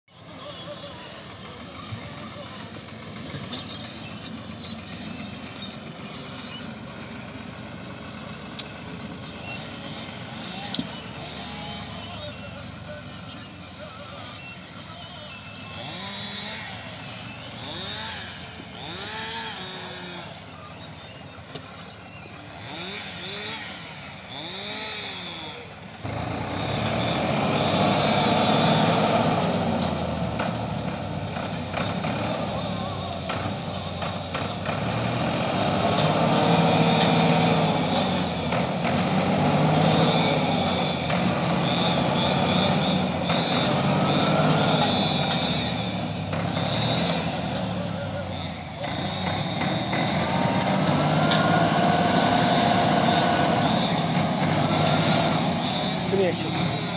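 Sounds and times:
tractor diesel engine revving: 0:00.1 - 0:56.9.

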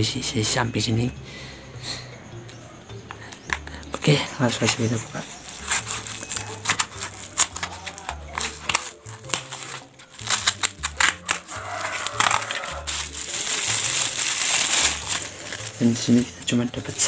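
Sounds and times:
plastic bag crinkling: 0:03.9 - 0:17.0
cardboard box tearing: 0:04.6 - 0:16.3.

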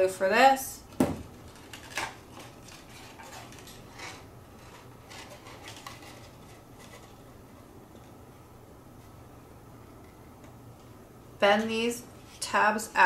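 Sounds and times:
plastic bottle knocking on table: 0:01.0 - 0:01.3.

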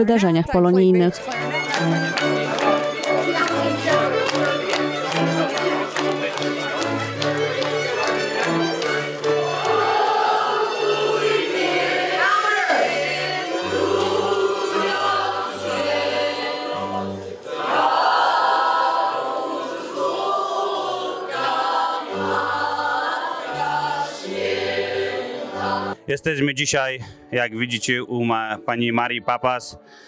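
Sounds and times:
choir singing a carol: 0:02.4 - 0:26.0.

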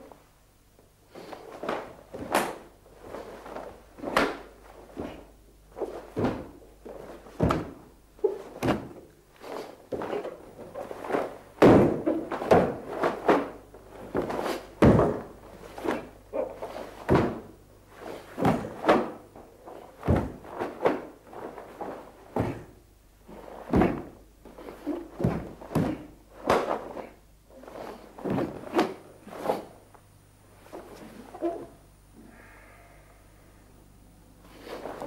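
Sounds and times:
bare feet stamping on wooden floor: 0:01.6 - 0:09.0, 0:09.9 - 0:16.1, 0:17.0 - 0:17.5, 0:18.3 - 0:22.8, 0:25.1 - 0:26.8, 0:28.2 - 0:29.0.

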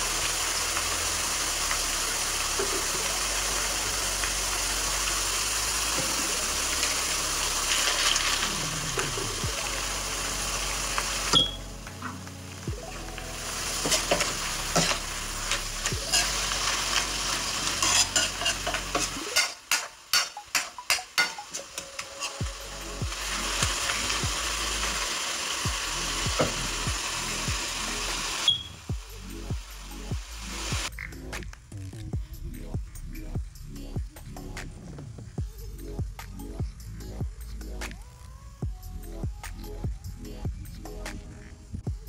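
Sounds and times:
food sizzling in hot oil: 0:00.0 - 0:31.2
metal spoon scraping wok: 0:13.8 - 0:23.4.

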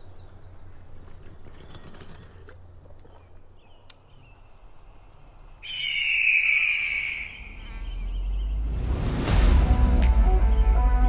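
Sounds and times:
high whistle-like animal call: 0:05.6 - 0:08.5.

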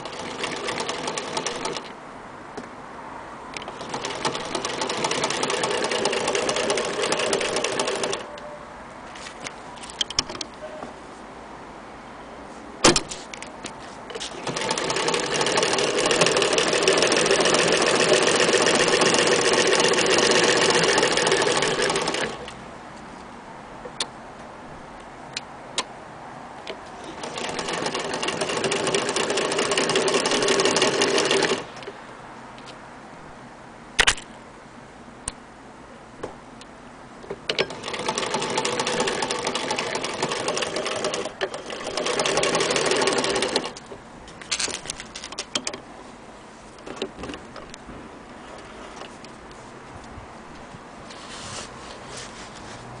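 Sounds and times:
sewing machine stitching: 0:00.0 - 0:01.9, 0:03.6 - 0:08.3, 0:14.1 - 0:22.5, 0:27.0 - 0:31.7, 0:37.5 - 0:43.8.

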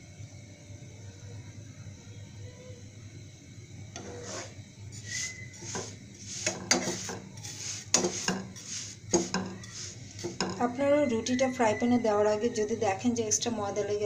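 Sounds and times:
plastic spatula scraping frying pan: 0:04.0 - 0:10.6
spatula knocking on pan: 0:05.6 - 0:07.3, 0:07.9 - 0:10.7.

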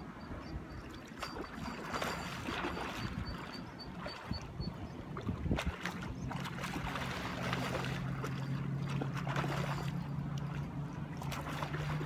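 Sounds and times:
fish splashing at water surface: 0:05.2 - 0:12.0.

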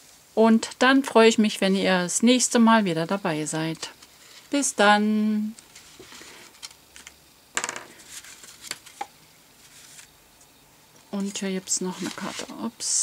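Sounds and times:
card rustling and tapping: 0:05.8 - 0:10.1.

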